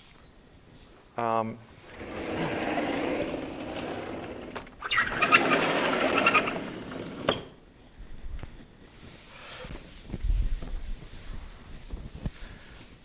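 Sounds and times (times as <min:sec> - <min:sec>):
sliding panels rumbling and rattling: 0:01.8 - 0:07.5
high squeak: 0:04.8 - 0:07.5.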